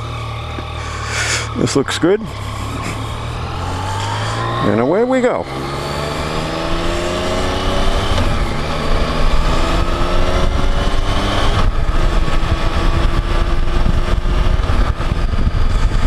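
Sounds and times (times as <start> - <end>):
motorcycle engine accelerating: 0.0 - 16.0
wind rumble on microphone: 5.9 - 16.0.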